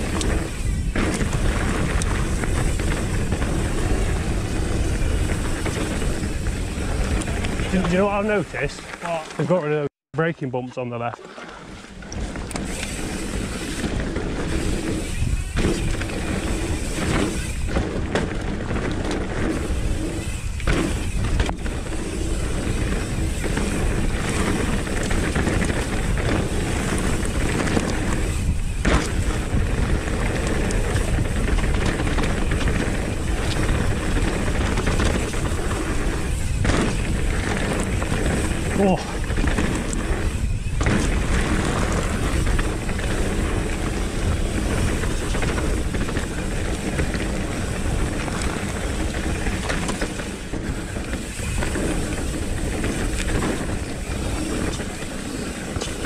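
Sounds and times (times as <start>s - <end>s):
wind rushing on helmet: 0.0s - 8.8s, 11.7s - 56.0s
bike tyre and chassis noise: 0.0s - 9.8s, 11.2s - 56.0s
knocks from trail bumps: 20.6s - 56.0s.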